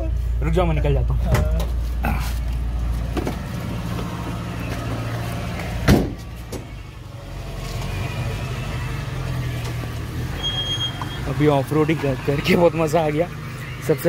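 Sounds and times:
car engine idling: 0.0s - 14.0s
car door slamming: 5.7s - 6.8s.

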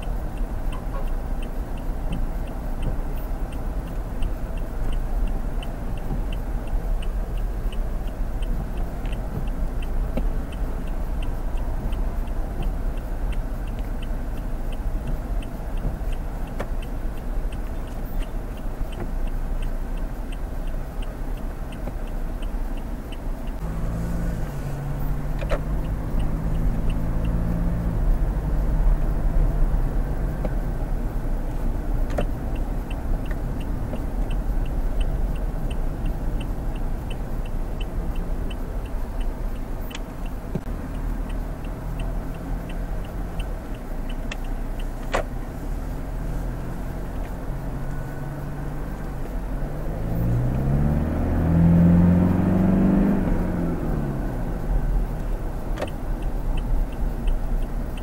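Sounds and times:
diesel engine humming: 0.0s - 58.0s
road rumble: 0.0s - 58.0s
turn signal ticking: 0.0s - 58.0s.

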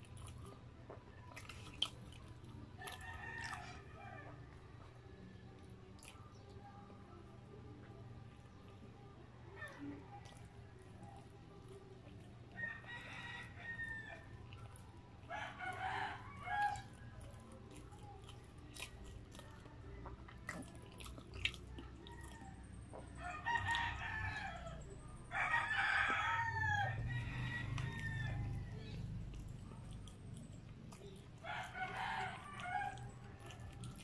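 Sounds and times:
chewing clicks and lip smacks: 0.0s - 25.0s, 27.0s - 34.0s
rooster crowing: 2.8s - 4.4s, 12.6s - 14.3s, 15.3s - 17.0s, 22.0s - 29.0s, 31.4s - 33.6s.

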